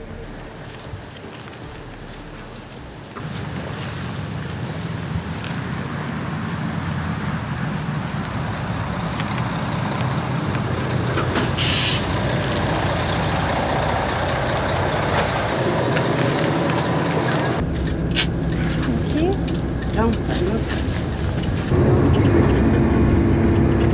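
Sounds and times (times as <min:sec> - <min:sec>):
diesel bus engine rumbling: 0:00.0 - 0:23.9
pneumatic air hiss: 0:11.4 - 0:12.1.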